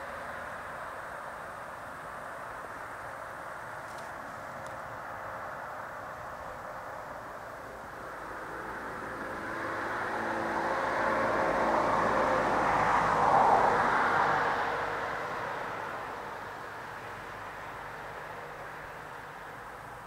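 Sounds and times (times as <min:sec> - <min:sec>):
vehicle passing by: 0:07.6 - 0:19.6.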